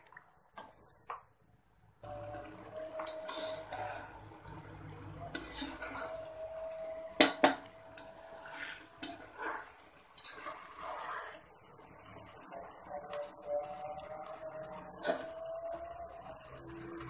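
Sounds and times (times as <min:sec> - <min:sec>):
spatula scraping pot: 0:02.1 - 0:12.6, 0:14.3 - 0:15.5.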